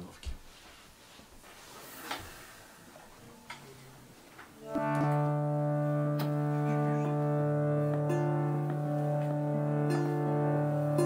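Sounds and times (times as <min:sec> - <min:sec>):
harmonium sustained chord: 0:04.6 - 0:11.0.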